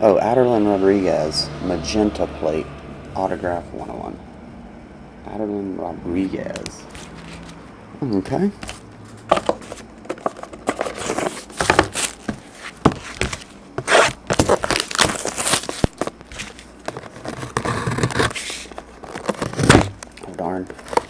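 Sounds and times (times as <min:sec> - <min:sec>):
plastic wrap crinkling and tearing: 0:13.0 - 0:21.0.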